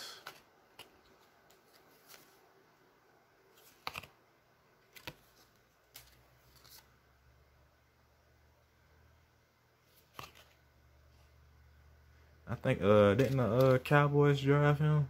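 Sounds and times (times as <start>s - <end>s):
trading cards tapping and rustling: 3.6s - 4.2s, 13.1s - 14.0s.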